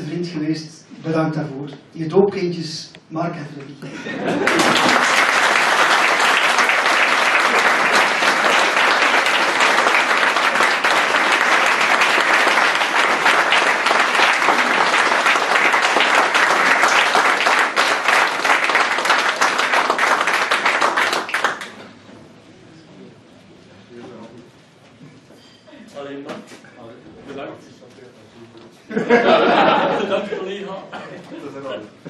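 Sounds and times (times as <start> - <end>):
audience applauding: 4.2 - 21.9.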